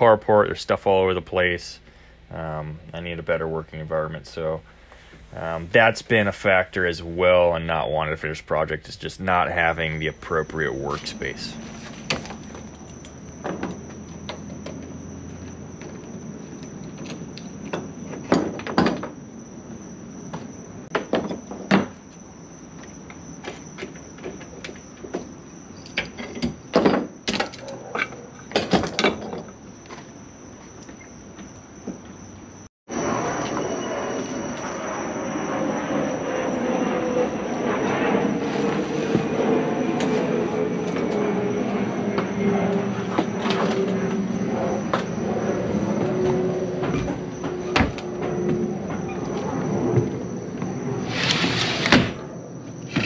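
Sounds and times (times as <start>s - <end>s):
mechanical hum with high whine: 0.0s - 53.0s
knocks and clatters: 23.4s - 30.0s.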